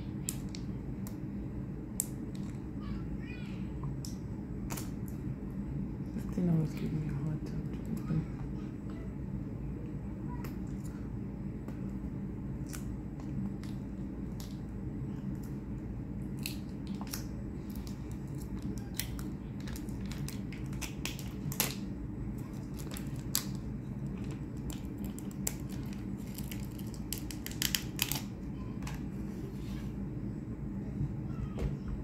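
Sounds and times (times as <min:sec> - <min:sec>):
steady low hum: 0:00.0 - 0:32.0
plastic packaging clicks and crackles: 0:16.4 - 0:21.8, 0:22.4 - 0:29.0.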